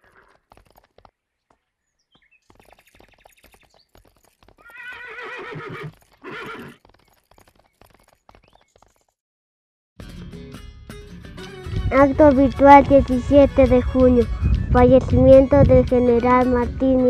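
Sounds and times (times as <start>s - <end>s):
horse whinnying: 0.0s - 0.4s, 4.6s - 6.8s
horse hoofbeats: 0.0s - 1.7s, 2.3s - 9.2s.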